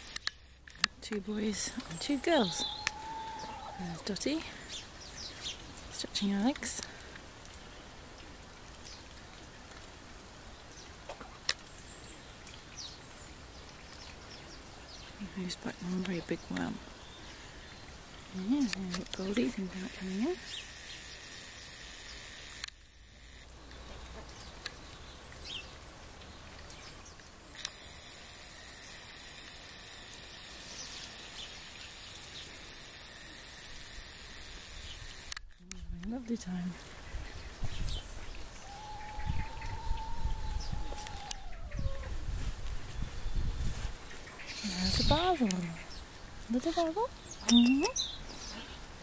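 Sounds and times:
outdoor background hiss: 0.0s - 49.0s
high bird chirps: 1.6s - 4.1s.

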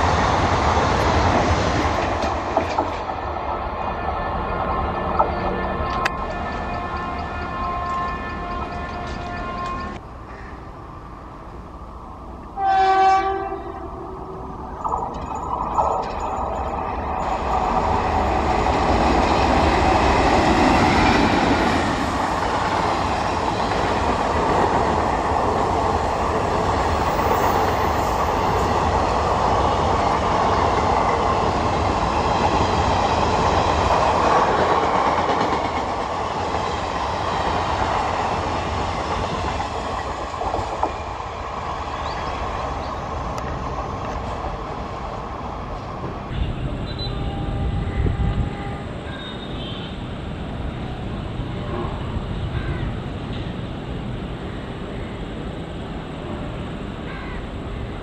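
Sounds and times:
train wheels clattering on rails: 0.0s - 3.3s, 14.8s - 44.8s.

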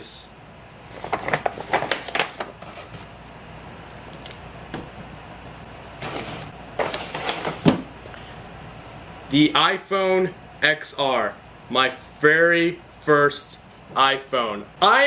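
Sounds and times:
paper bag rustling and crinkling: 0.9s - 3.4s.

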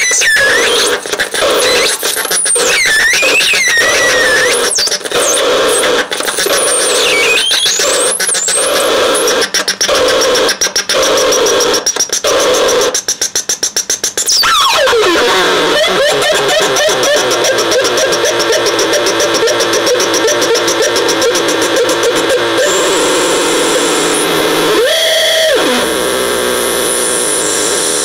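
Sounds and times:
harsh noisy electronic tones: 0.0s - 28.0s
whistling pitch sweeps: 6.8s - 8.6s
steady high whine: 14.0s - 28.0s.

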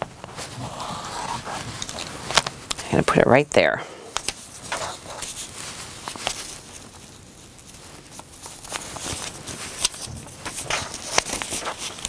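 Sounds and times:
paper and fabric rustling: 4.2s - 12.0s.

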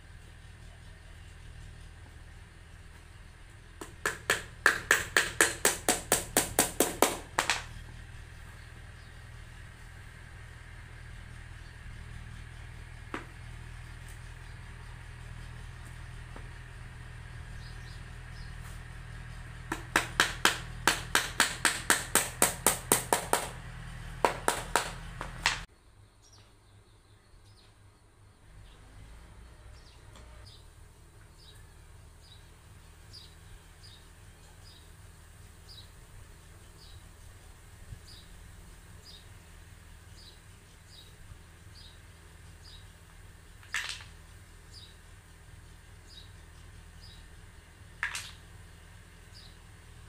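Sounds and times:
steady low hum: 0.0s - 50.0s
hammer tapping nails into cardboard: 3.8s - 7.7s, 19.7s - 23.6s, 24.2s - 25.6s.

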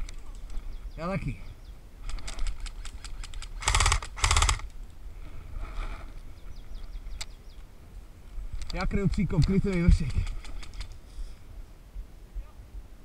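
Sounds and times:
loud rattling bursts: 2.0s - 4.7s, 8.8s - 11.0s.

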